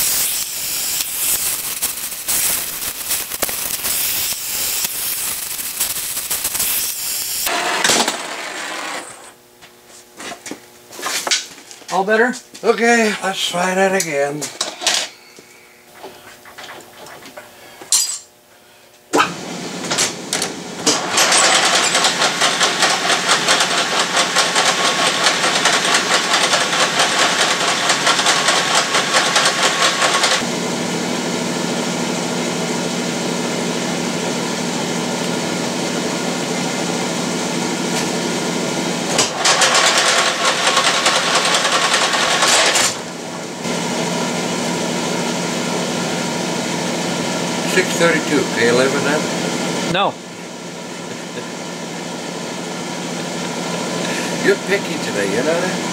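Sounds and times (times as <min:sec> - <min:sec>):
metal lathe cutting steel: 0:00.0 - 0:09.3, 0:21.0 - 0:30.5.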